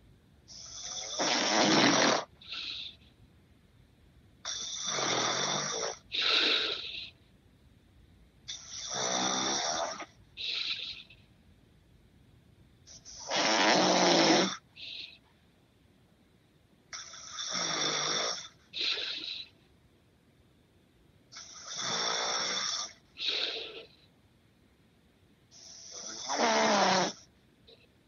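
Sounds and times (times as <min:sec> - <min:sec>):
man snoring heavily: 0:00.5 - 0:03.0, 0:04.5 - 0:07.1, 0:08.5 - 0:11.0, 0:13.0 - 0:15.1, 0:17.0 - 0:19.5, 0:21.4 - 0:23.9, 0:25.6 - 0:27.2
short high-pitched snort: 0:00.5 - 0:03.0, 0:04.5 - 0:07.1, 0:12.9 - 0:15.1, 0:25.6 - 0:27.2.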